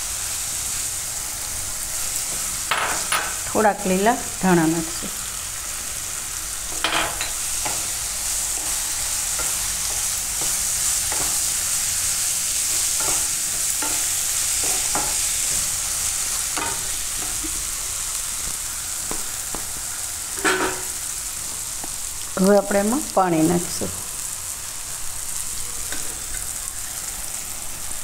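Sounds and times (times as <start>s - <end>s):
vegetables sizzling in oil: 0.0s - 28.0s
spatula knocking and scraping pan: 6.7s - 8.0s, 8.6s - 11.6s, 12.6s - 17.7s, 20.3s - 21.0s.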